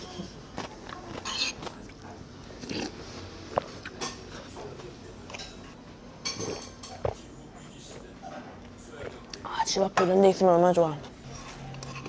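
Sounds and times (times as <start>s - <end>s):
eating and sipping noises: 0.0s - 9.8s, 10.9s - 12.0s
metal spoon clinking dishes: 6.2s - 7.0s, 11.4s - 12.0s.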